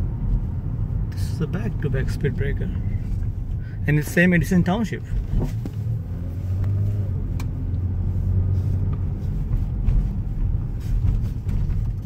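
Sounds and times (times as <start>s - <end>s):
engine and road hum: 0.0s - 12.0s.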